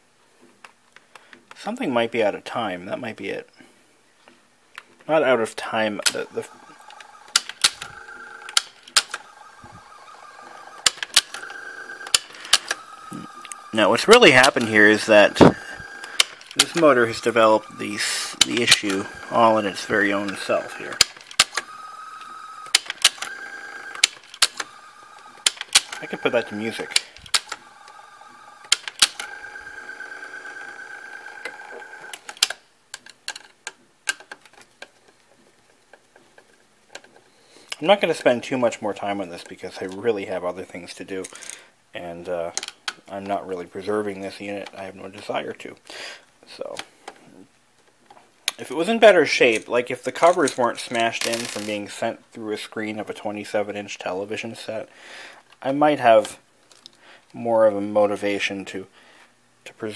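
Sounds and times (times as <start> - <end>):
vcr motor whine: 5.6 - 32.3
sharp mechanical clicks: 6.0 - 32.6.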